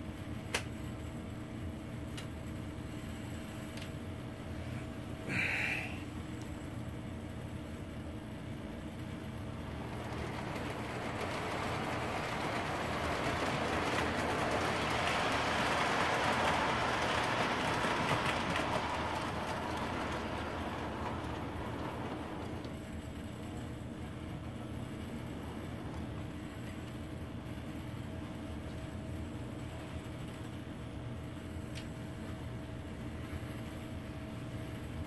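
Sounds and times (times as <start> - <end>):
toy train rolling on track: 8.9 - 28.0.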